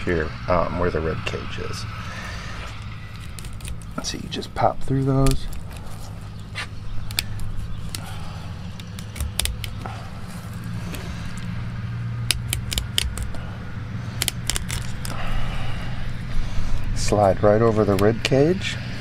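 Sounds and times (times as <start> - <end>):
steady low hum: 0.0 - 19.0
knife cutting through fish bones: 12.3 - 13.4.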